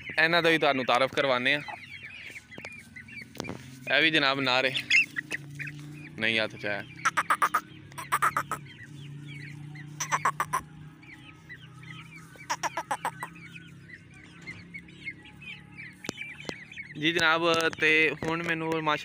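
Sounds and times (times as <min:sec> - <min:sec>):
chicks peeping: 0:00.0 - 0:19.0
rapid clucking: 0:07.0 - 0:08.6, 0:10.0 - 0:10.7, 0:12.4 - 0:13.3.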